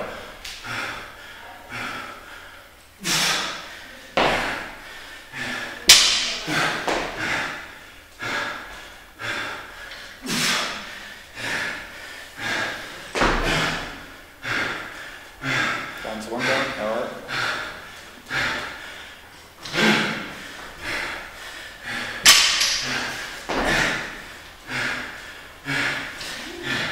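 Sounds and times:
person breathing hard with effort: 0.0s - 26.9s
barbell thuds: 5.9s - 7.2s, 13.1s - 13.8s, 22.2s - 23.9s.

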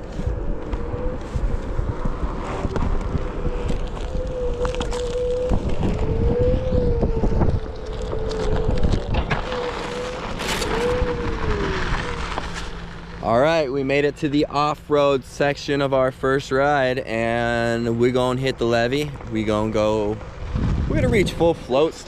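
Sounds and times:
electric motor whining: 0.0s - 14.2s
tyre rumble: 0.0s - 14.6s, 17.1s - 22.0s
wind buffeting microphone: 0.0s - 22.0s.

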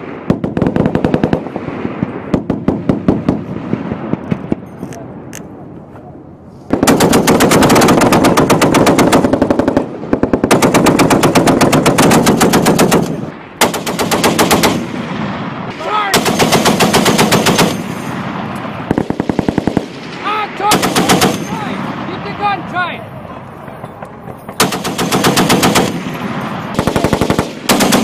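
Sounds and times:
heavy machine gun firing bursts: 0.2s - 3.8s, 6.7s - 15.4s, 16.0s - 22.0s, 24.6s - 28.0s.

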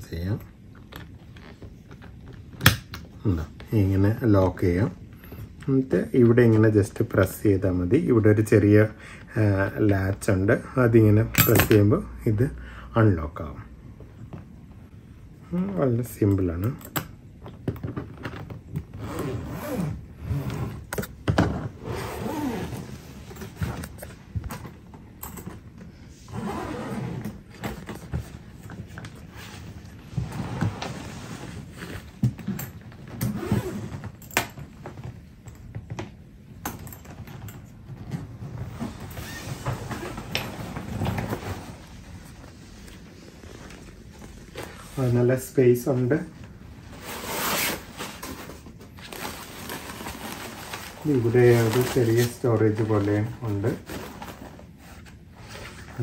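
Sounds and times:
clicks and knocks of suitcase: 16.8s - 19.0s, 31.8s - 38.4s
suitcase zipper rasping: 18.8s - 23.9s, 26.2s - 28.0s, 30.1s - 34.4s, 38.4s - 41.9s.

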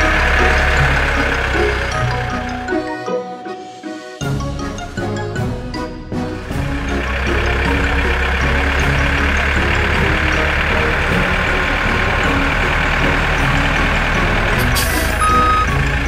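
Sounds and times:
cartoon tractor engine: 0.0s - 16.0s
high-pitched reversing beep: 15.2s - 15.8s.

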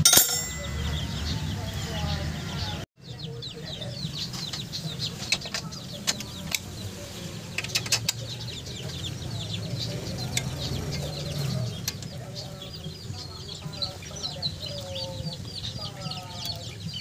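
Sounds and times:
metal tool clinking on bolts: 0.0s - 1.0s
birds chirping: 0.0s - 17.0s.

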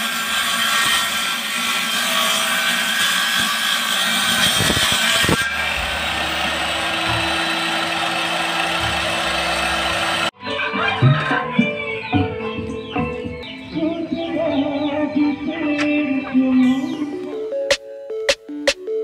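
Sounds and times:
table saw cutting plywood: 0.0s - 10.3s.

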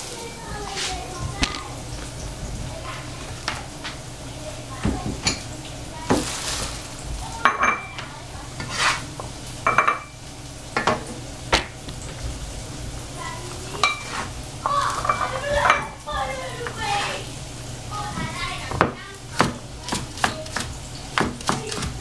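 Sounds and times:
frying sizzle: 0.0s - 22.0s
cleaver knocking on cutting board: 18.7s - 22.0s.

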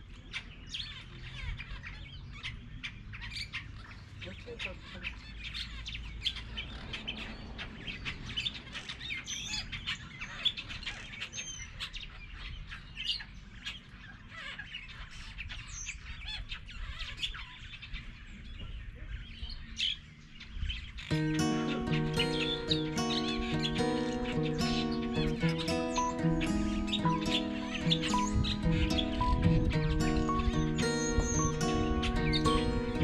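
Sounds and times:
wild dogs twittering: 21.1s - 33.0s.

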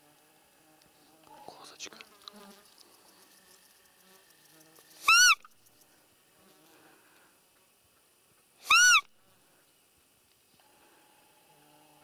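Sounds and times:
whistled deer call squeak: 5.0s - 5.5s, 8.6s - 9.1s.

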